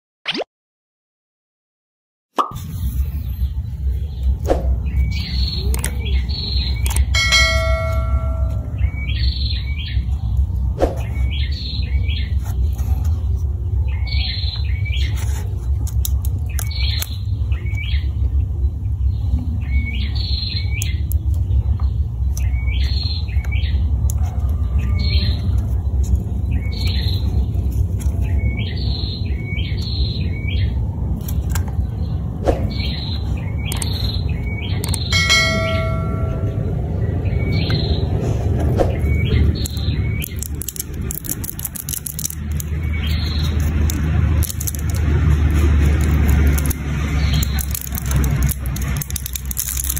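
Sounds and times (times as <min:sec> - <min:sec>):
bird chirping: 0:02.8 - 0:12.8, 0:16.2 - 0:23.9, 0:24.6 - 0:38.2, 0:38.8 - 0:45.0
bell-like chime: 0:07.2 - 0:08.8, 0:35.1 - 0:36.8
low rumble: 0:30.2 - 0:49.4.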